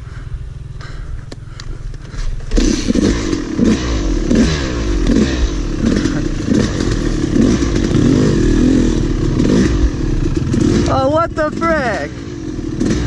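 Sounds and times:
dirt bike engine revving: 0:02.4 - 0:13.0.

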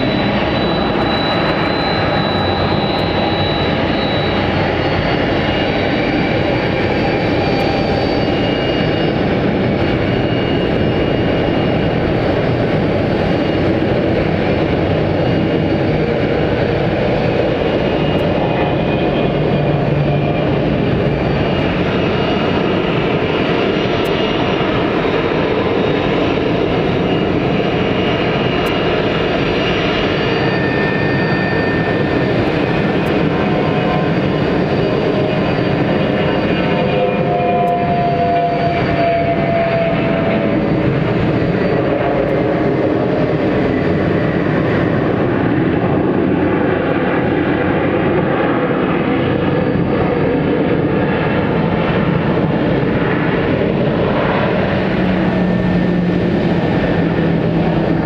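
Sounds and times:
high whining tones: 0:00.0 - 0:45.9
jet engines taxiing: 0:00.0 - 0:58.0.

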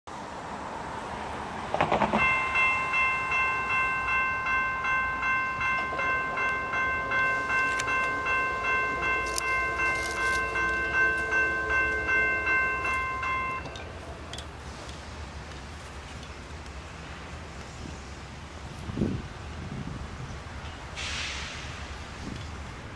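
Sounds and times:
low locomotive engine drone: 0:00.1 - 0:22.9
locomotive bell ringing: 0:02.2 - 0:15.0.

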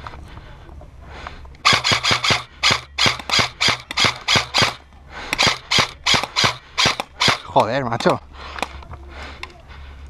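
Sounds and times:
airsoft rifle firing single shots: 0:01.6 - 0:04.8, 0:05.4 - 0:08.7.

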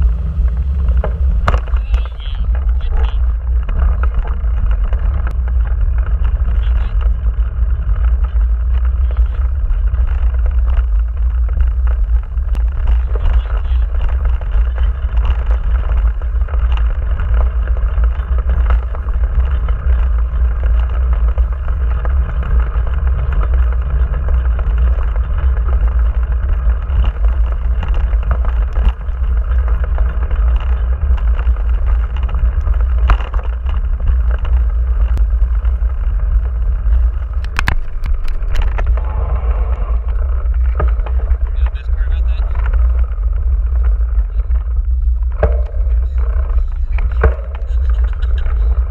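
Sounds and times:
bike tyres rolling on dirt: 0:00.0 - 0:48.9
wind buffeting microphone: 0:00.0 - 0:48.9
sharp knocks from bumps: 0:45.2 - 0:48.9.

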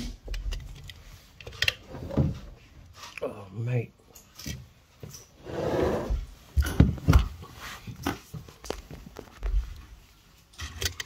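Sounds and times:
rustling handling noise: 0:06.1 - 0:11.0.

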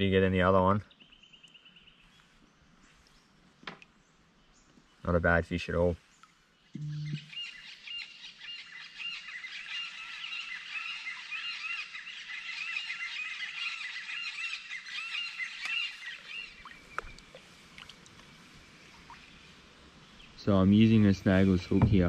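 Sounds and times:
flock of birds calling: 0:07.1 - 0:17.0
faint knocks: 0:21.7 - 0:22.0.

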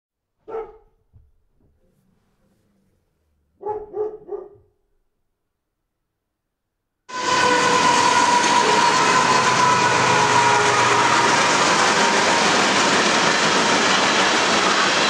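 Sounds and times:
dog barking: 0:00.4 - 0:01.0, 0:03.6 - 0:04.8.

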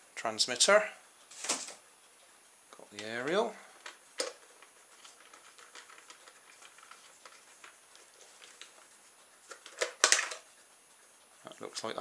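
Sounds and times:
plastic clacks: 0:03.8 - 0:07.8, 0:09.5 - 0:10.5
plastic handling clicks and rustles: 0:03.8 - 0:10.5.

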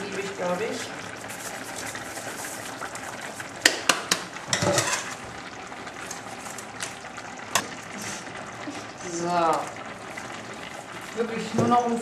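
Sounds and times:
utensils clattering against metal pot: 0:03.6 - 0:05.2.

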